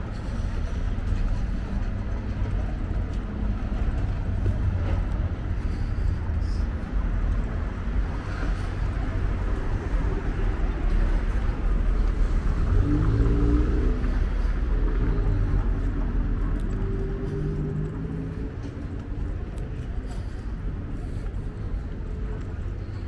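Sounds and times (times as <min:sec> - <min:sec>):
road traffic rumble: 0:00.0 - 0:23.0.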